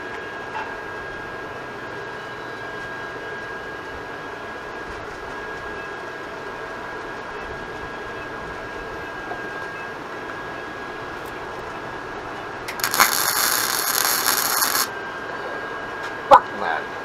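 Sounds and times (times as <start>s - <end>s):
welder arc crackling: 12.7s - 14.9s.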